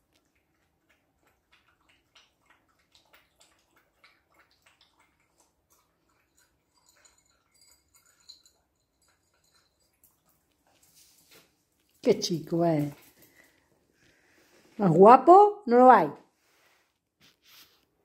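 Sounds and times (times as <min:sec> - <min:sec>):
puppy eating from bowl: 0:00.0 - 0:14.3.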